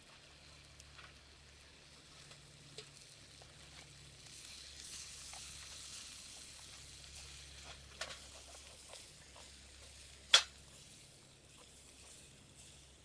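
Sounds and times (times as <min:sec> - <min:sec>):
meat sizzling in a skillet: 0:01.5 - 0:13.0
sharp crack: 0:10.2 - 0:10.6.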